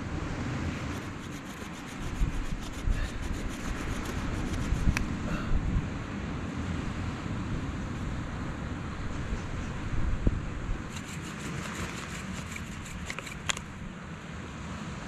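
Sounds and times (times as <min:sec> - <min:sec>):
bow drill spindle grinding wood: 0:00.9 - 0:05.0, 0:10.9 - 0:13.6
sharp click: 0:10.9 - 0:13.7.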